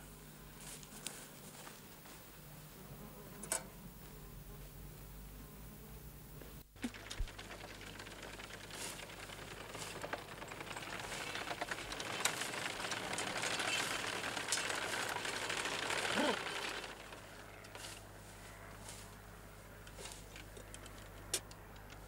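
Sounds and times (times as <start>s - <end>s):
hay mower clattering: 6.8s - 22.0s.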